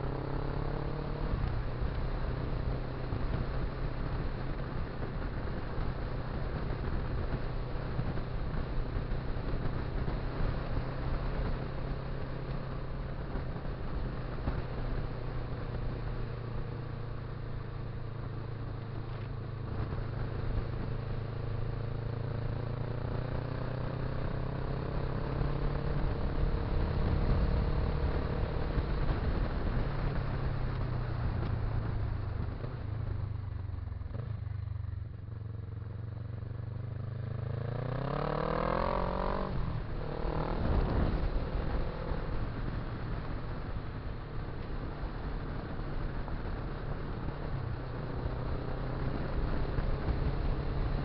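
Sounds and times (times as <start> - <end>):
motorcycle engine running: 0.0 - 51.0
motorcycle engine revving up: 37.2 - 42.4.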